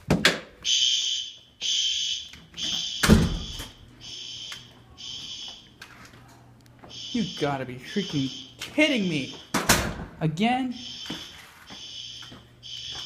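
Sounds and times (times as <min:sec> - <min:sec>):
fire alarm blasts: 0:00.6 - 0:05.8, 0:06.9 - 0:09.7, 0:10.7 - 0:13.0.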